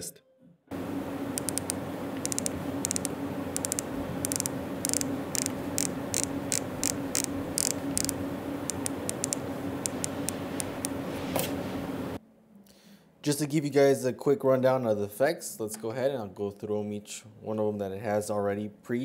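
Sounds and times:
steady hiss and low hum: 0.7 - 19.0
volume knob clicking: 1.4 - 11.0.

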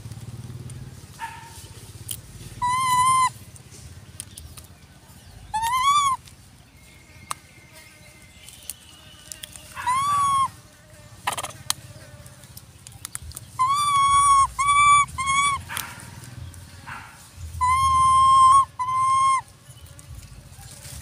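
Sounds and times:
macaque coo calls: 2.6 - 3.4, 5.4 - 6.3, 9.7 - 10.6, 11.2 - 12.4, 13.5 - 16.1, 17.6 - 19.5.

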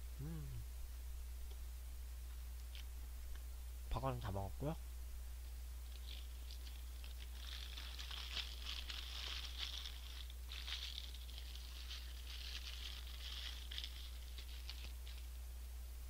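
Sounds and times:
paper wrapper crumpling: 5.9 - 15.3.

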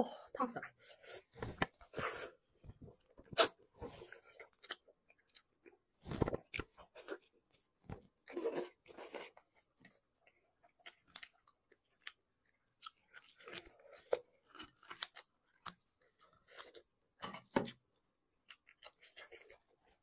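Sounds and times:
person chewing and biting: 3.2 - 7.3, 10.2 - 17.6.

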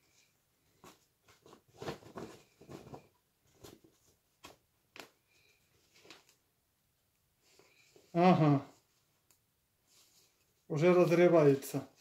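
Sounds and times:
fabric bag rustling: 0.7 - 4.2.

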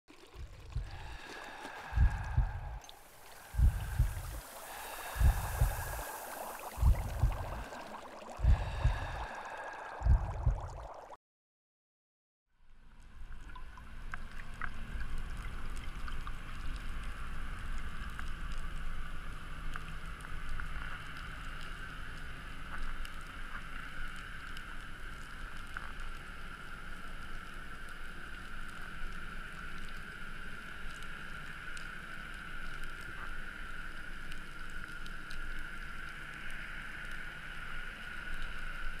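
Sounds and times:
bubbling splashing water: 0.1 - 11.2
underwater hiss and rumble: 0.1 - 11.2, 12.8 - 39.0
deep thumps: 2.0 - 2.8, 3.6 - 4.4, 6.8 - 7.7, 10.0 - 10.6.

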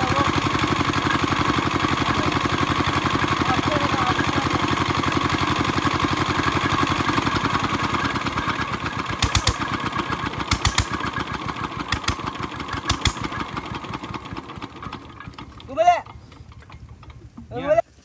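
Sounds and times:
small engine running: 0.0 - 18.0.

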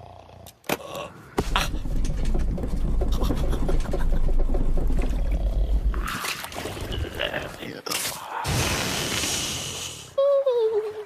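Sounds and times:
heavy low rumble with clattering: 1.4 - 6.1
hiss: 8.5 - 10.2.

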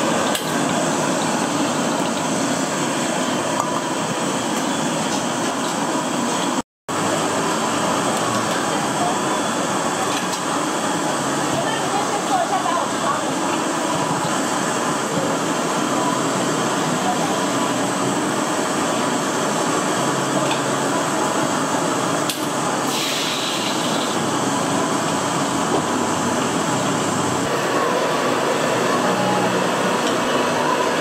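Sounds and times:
background chatter: 8.4 - 17.7
short hiss: 22.9 - 23.9.

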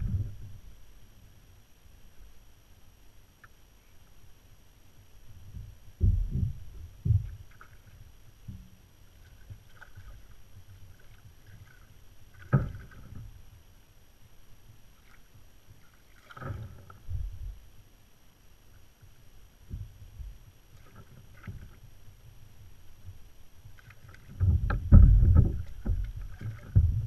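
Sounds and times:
water splashing: 9.1 - 13.2, 15.0 - 17.2, 23.8 - 27.0.

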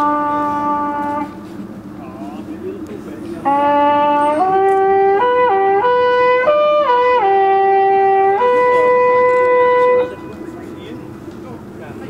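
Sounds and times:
wooden horn blowing: 0.0 - 1.7, 3.2 - 11.1.

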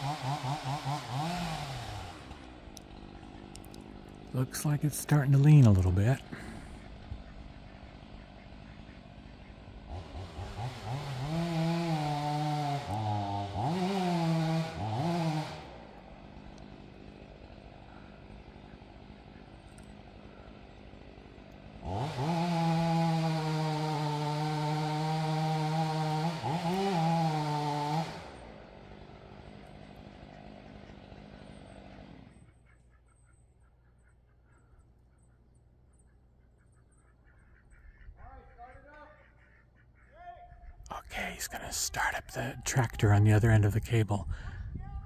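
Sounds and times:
chainsaw cutting wood: 0.0 - 32.5.

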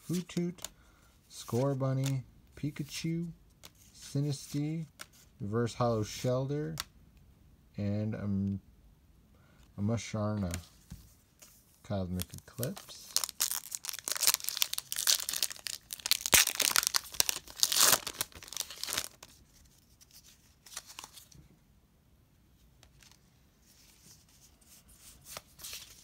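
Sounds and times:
faint card rustles: 10.3 - 21.6, 22.6 - 26.0
wrapper tearing and crinkling: 12.6 - 19.3.

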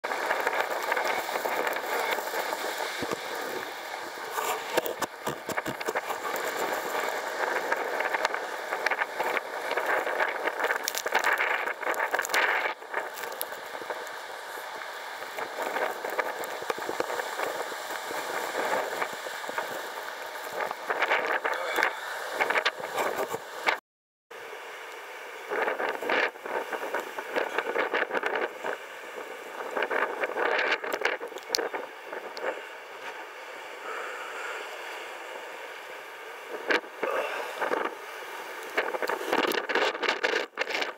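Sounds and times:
blizzard wind gusting: 0.0 - 23.8
crackles and ticks: 0.0 - 23.8, 24.9 - 33.3, 38.6 - 40.9.

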